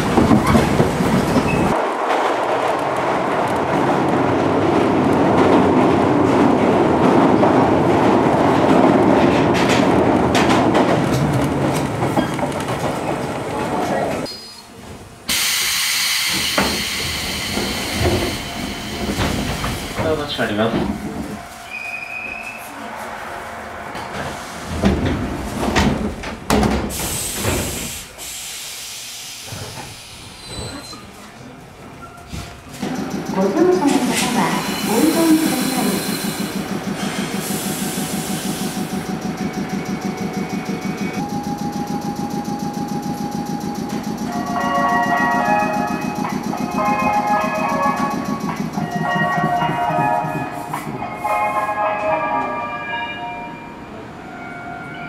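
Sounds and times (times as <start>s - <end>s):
train wheels rumbling on rail: 0.0s - 52.6s
hissing air: 34.1s - 39.0s.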